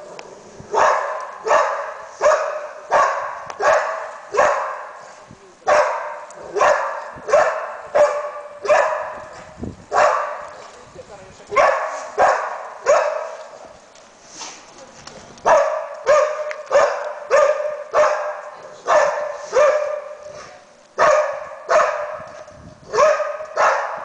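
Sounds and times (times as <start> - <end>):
dog barking with echo: 0.7 - 5.0, 5.7 - 9.3, 9.9 - 10.4, 11.6 - 13.4, 15.5 - 20.2, 21.0 - 22.3, 22.9 - 24.0.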